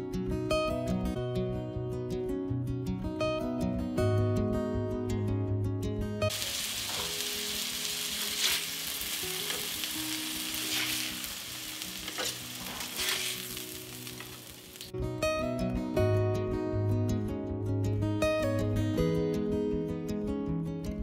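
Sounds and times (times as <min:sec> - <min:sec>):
patties sizzling in skillet: 0:06.3 - 0:14.9
metal spatula scraping pan: 0:10.6 - 0:11.1, 0:12.0 - 0:13.6.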